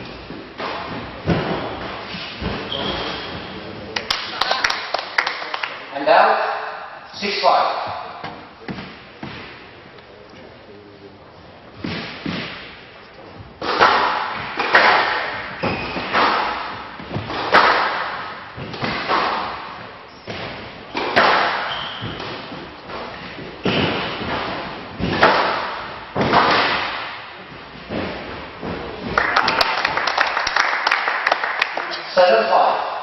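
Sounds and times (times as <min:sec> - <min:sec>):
squash ball hitting rackets: 0:00.0 - 0:03.5, 0:11.8 - 0:12.9, 0:13.5 - 0:30.0
squash ball hitting walls: 0:00.0 - 0:04.3, 0:07.8 - 0:09.7, 0:11.8 - 0:31.8.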